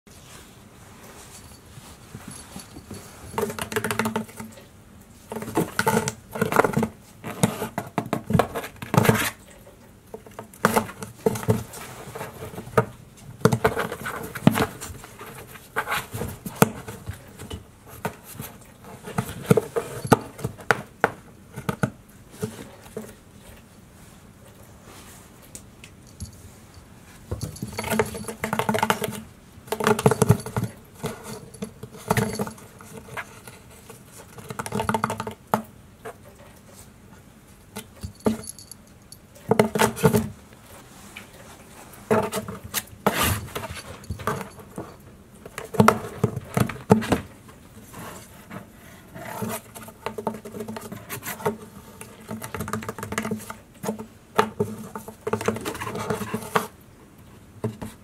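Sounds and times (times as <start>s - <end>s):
cats scratching cardboard box: 5.3s - 9.4s, 42.0s - 44.8s, 45.5s - 56.8s.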